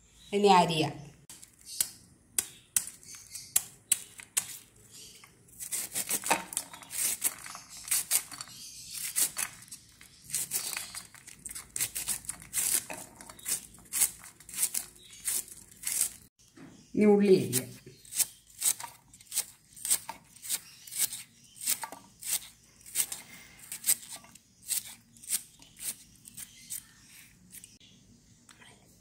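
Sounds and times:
knife slicing cabbage: 5.5 - 16.3, 17.4 - 27.7.

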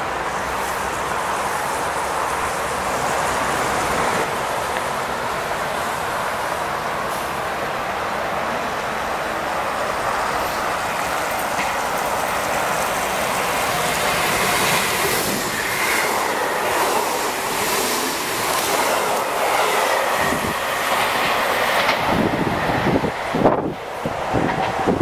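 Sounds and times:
train passing on track: 0.0 - 25.0
wheels clattering over rail joints: 10.3 - 22.3.

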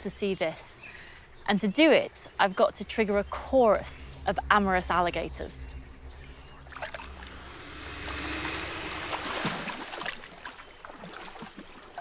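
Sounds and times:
water sloshing and splashing: 6.0 - 7.4, 8.8 - 12.0.

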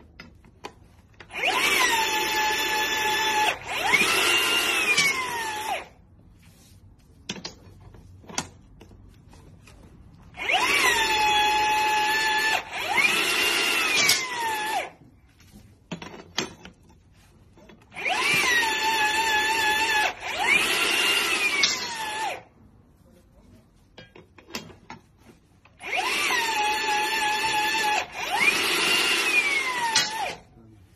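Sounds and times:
rebar bender motor whining: 1.2 - 5.9, 10.3 - 15.0.

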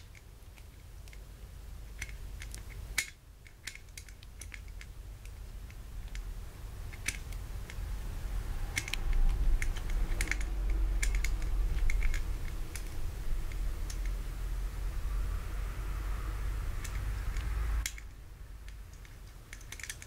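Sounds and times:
low handling rumble: 5.0 - 19.6.

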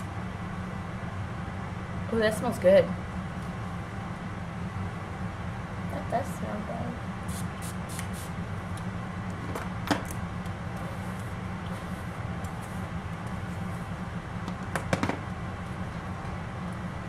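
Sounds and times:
low room hum: 0.0 - 17.0.

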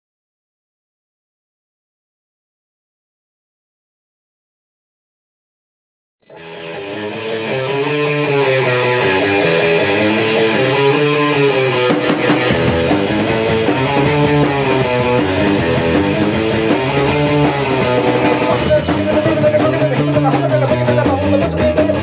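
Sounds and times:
electric guitar strumming: 6.2 - 22.0
drum kit with cymbals: 11.8 - 22.0.

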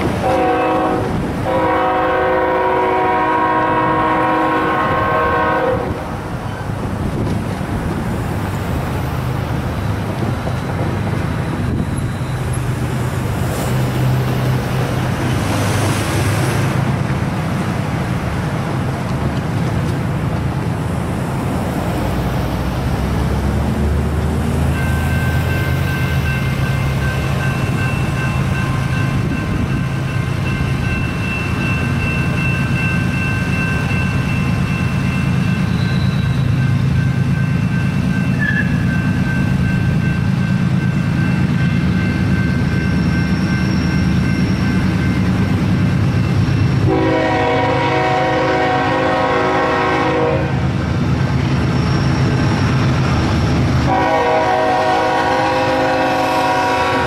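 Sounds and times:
road traffic rumbling: 0.0 - 43.4, 44.0 - 57.0
crossing warning bell ringing: 9.4 - 15.3, 24.3 - 50.4.

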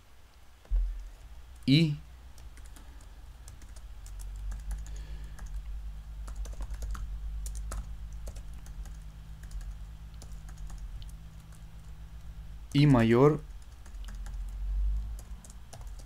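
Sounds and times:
low steady hum: 0.0 - 16.0
typing on keyboard: 2.4 - 12.0, 13.5 - 16.0.

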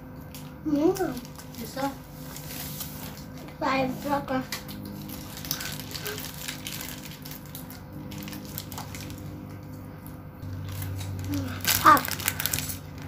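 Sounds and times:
chewing crispy fried chicken: 4.5 - 13.0.

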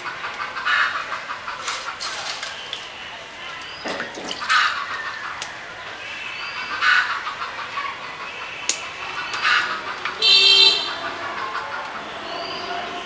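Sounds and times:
chickens clucking: 0.0 - 6.0, 6.6 - 10.2, 10.9 - 13.0.

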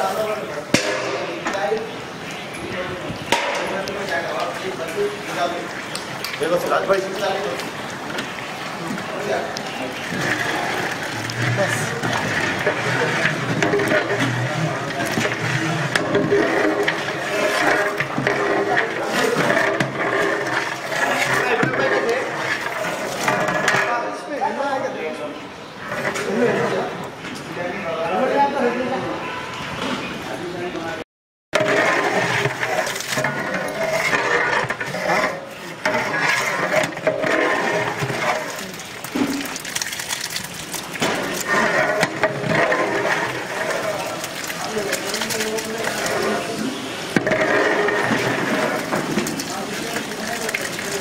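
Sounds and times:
steady background noise: 0.0 - 31.0, 31.6 - 51.0
background voices: 2.6 - 23.9, 31.6 - 51.0
ladle scraping metal pot: 3.2 - 24.2, 25.8 - 26.9, 31.6 - 51.0.

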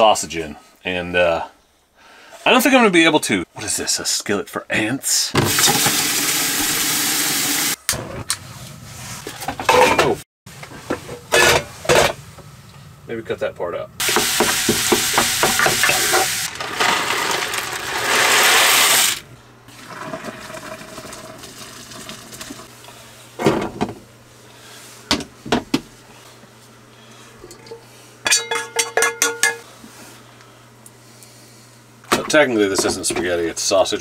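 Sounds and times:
utensil knocks on pans: 14.0 - 16.0.

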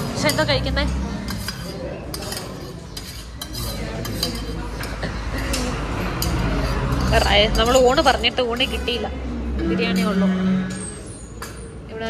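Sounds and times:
cutlery and dishes clinking: 0.0 - 9.0.

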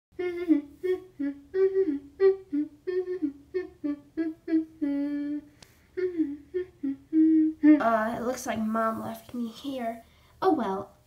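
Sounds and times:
person humming a bouncy tune: 0.1 - 8.2.

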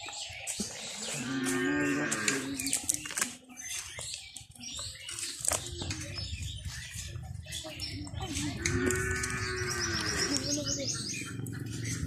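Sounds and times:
cow mooing: 1.2 - 2.6, 8.6 - 10.4.

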